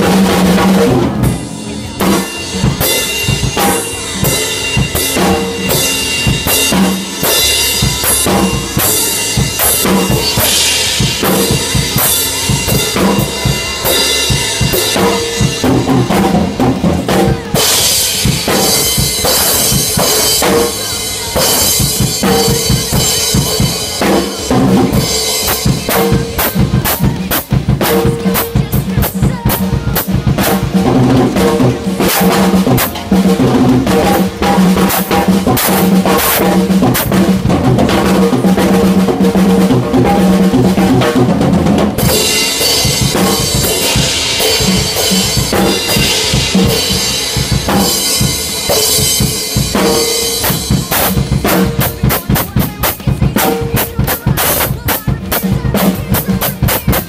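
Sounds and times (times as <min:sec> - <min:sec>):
cymbals: 0:00.0 - 0:57.0
recorded song: 0:00.0 - 0:57.0.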